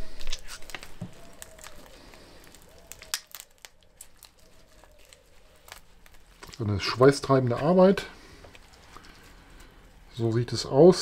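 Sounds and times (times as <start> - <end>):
wet clicks and crinkles of raw chicken: 0.1 - 7.7, 8.3 - 10.1.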